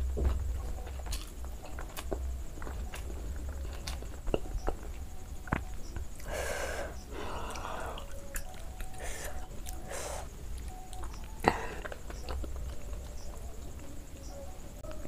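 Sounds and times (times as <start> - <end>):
chewing: 0.2 - 13.9.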